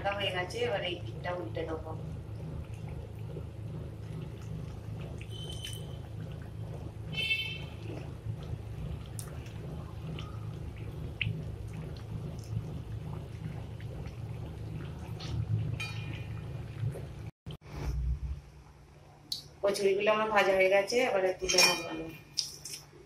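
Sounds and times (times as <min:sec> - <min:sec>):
low hum: 0:00.0 - 0:19.3
metallic rings: 0:21.4 - 0:22.3.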